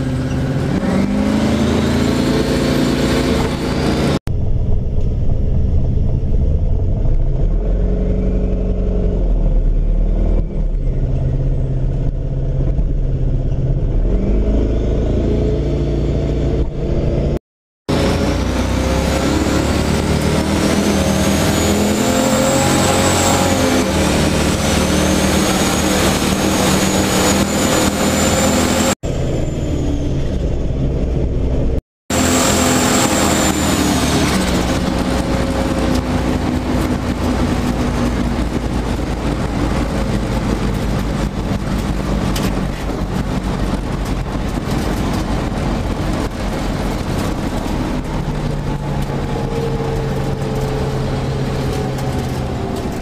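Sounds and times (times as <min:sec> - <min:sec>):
car engine running in cabin: 0:00.0 - 0:53.0.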